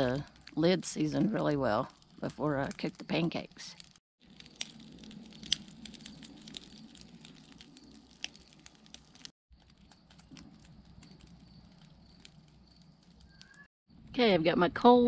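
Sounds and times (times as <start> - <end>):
charcoal fire crackling: 0.0 - 14.3
fire popping: 0.0 - 14.3.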